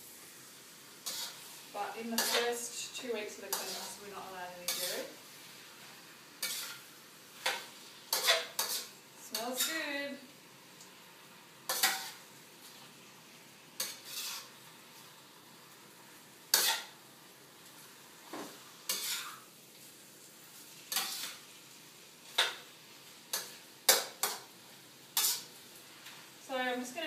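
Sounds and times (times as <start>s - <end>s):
faint sizzle: 0.0s - 27.0s
metal utensil scraping a wok: 1.0s - 10.0s, 11.7s - 12.8s, 13.8s - 15.1s, 16.5s - 17.0s, 18.5s - 19.5s, 20.6s - 21.5s, 23.3s - 25.6s.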